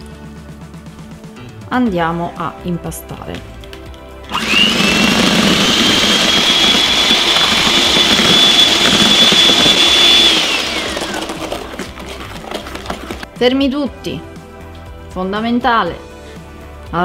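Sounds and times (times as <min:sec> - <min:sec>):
electric hand mixer whining: 0:04.3 - 0:13.3.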